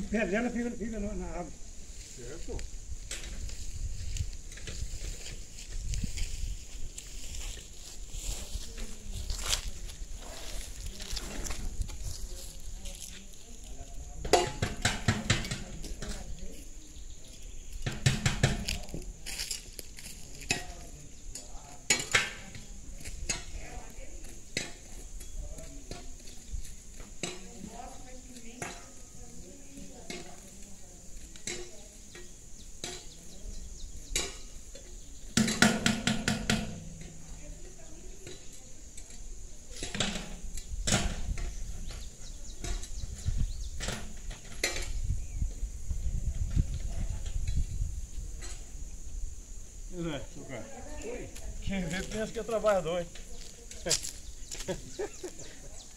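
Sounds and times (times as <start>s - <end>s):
sharp knocks: 17.8s - 18.7s, 35.4s - 37.0s.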